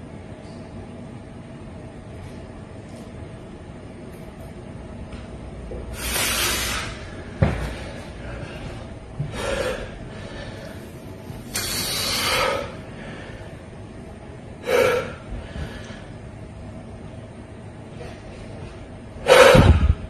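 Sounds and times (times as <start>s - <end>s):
man breathing hard: 5.9s - 13.7s, 14.6s - 16.2s, 19.2s - 20.0s.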